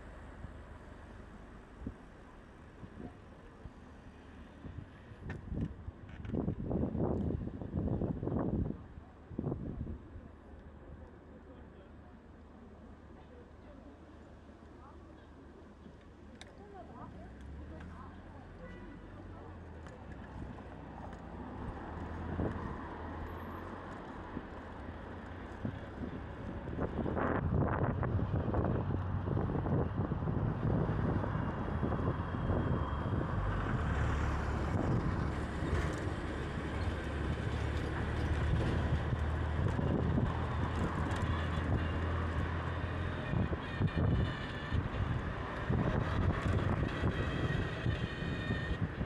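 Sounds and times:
street traffic: 0.0 - 49.0
wind rumbling on microphone: 4.6 - 10.1, 19.9 - 23.2, 23.8 - 49.0.

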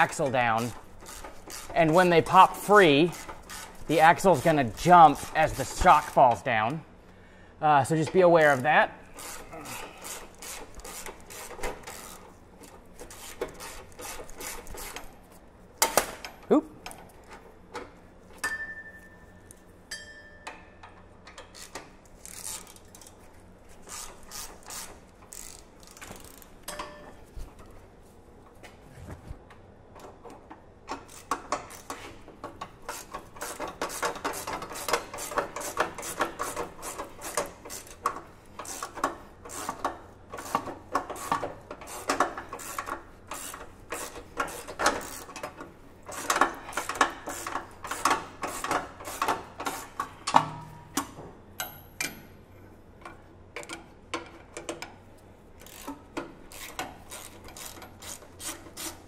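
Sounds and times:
socket ratchet clicking: 32.6 - 50.1, 55.6 - 59.0.

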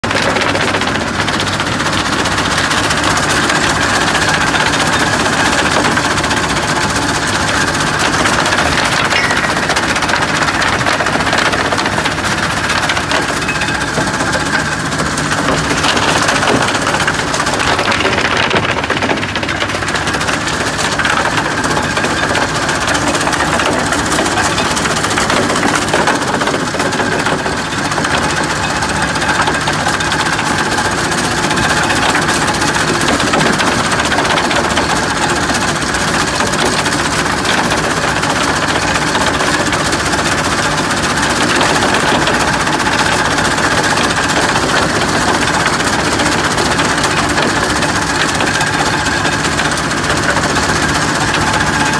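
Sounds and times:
engine running: 0.0 - 51.9
stones rattling over screens: 7.4 - 29.7.

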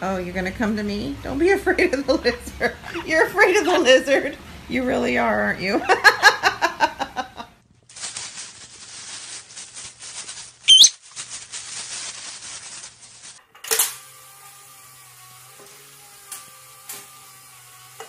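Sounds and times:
people laughing: 5.8 - 7.5
crackly plastic rustling: 7.7 - 13.4
short high squeak: 10.7 - 11.0.

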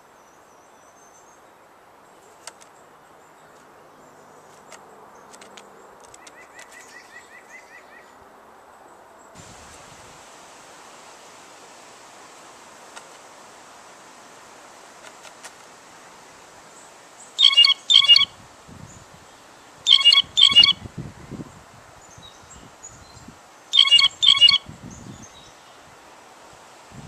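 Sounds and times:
blue jay calling: 16.7 - 18.4, 19.4 - 20.9, 23.7 - 25.6.

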